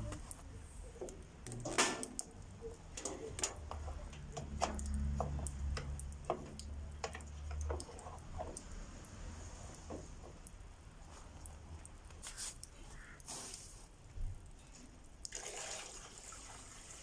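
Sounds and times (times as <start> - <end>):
plastic hose clicks and knocks: 3.0 - 8.7.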